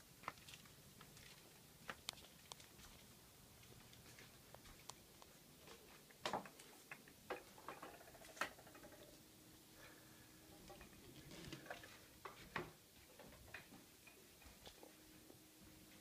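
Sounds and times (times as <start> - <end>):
faint steady hum: 0.0 - 16.0
faint clicks and ticks: 3.6 - 9.2.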